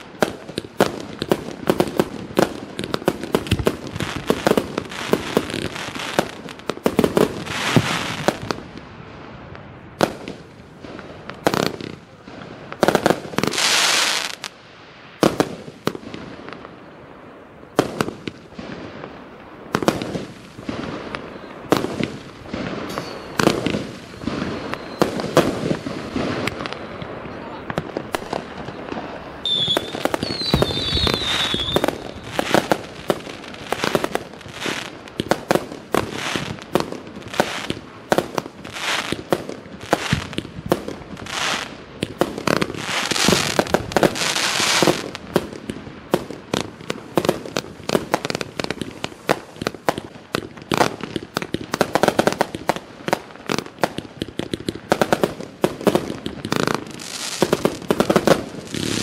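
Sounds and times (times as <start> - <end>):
fireworks cake shots and bursts: 0.0 - 59.0
firework whistle: 22.6 - 32.9.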